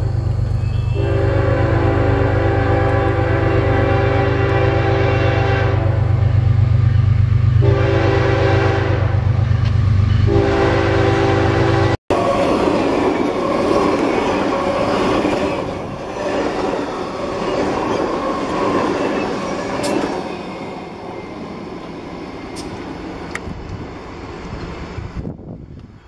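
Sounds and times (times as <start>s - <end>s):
train wheels clattering on rails: 12.2s - 25.1s.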